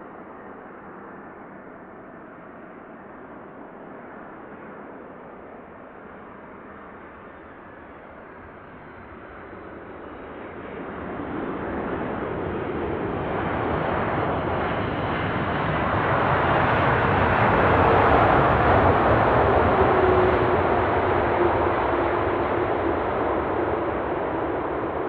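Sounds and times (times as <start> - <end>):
jet airliner passing close: 0.0 - 25.0.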